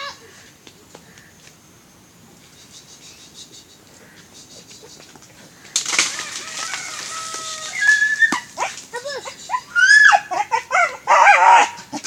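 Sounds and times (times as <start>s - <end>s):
sudden loud rustle: 5.6s - 8.9s.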